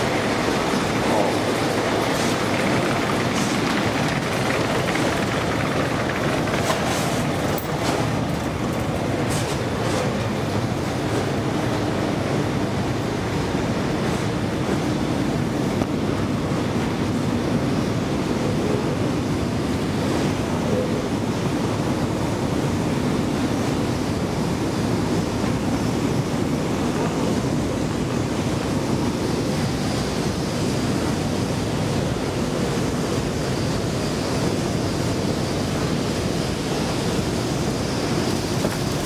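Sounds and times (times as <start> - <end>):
escalator rumbling hum: 0.0 - 17.6.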